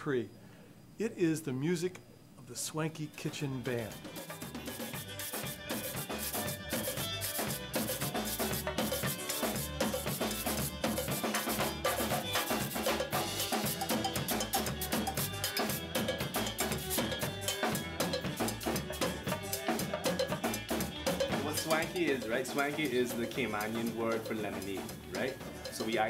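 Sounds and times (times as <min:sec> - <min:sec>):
congas: 0:03.1 - 0:26.0
cowbell struck with stick: 0:10.8 - 0:26.0.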